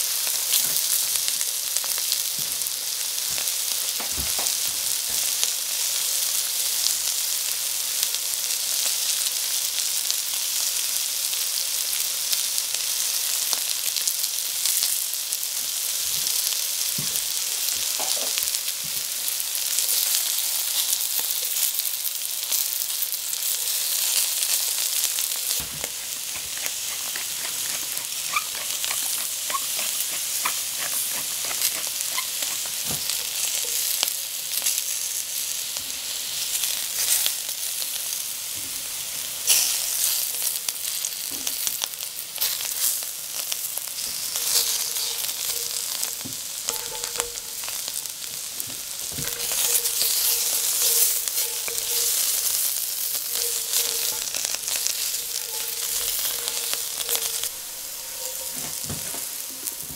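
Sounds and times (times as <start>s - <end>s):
vegetables sizzling in hot oil: 0.0s - 59.9s
oil popping and crackling: 13.4s - 35.8s, 39.4s - 59.9s.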